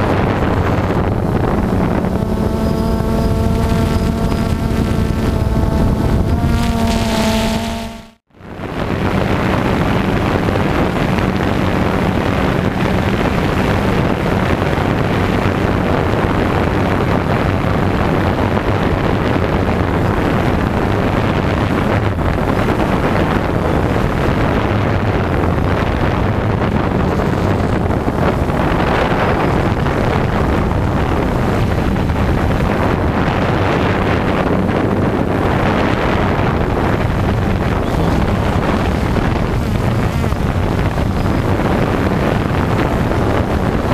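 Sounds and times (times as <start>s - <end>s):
drone motors whirring: 0.0s - 8.2s
wind over microphone: 0.0s - 43.9s.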